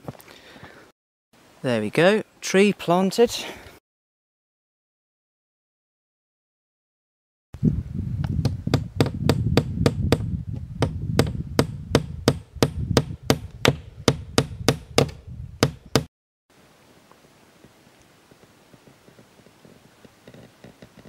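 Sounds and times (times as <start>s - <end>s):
hammer driving nail into wood: 8.8s - 16.1s.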